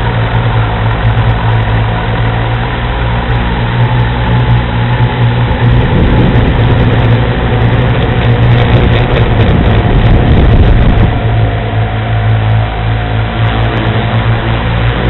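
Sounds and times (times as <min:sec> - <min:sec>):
drone propellers buzzing: 0:00.0 - 0:15.0
wind rushing: 0:05.3 - 0:15.0.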